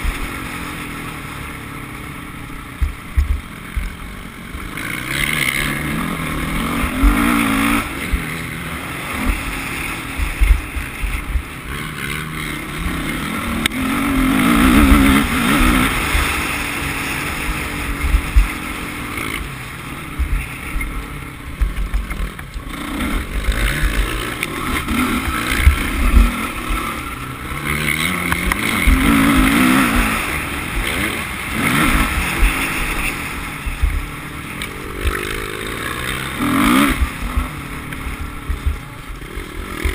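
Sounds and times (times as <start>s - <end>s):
dirt bike engine revving: 0.0s - 39.9s
low rumbling thumps: 2.8s - 4.0s, 38.3s - 38.9s.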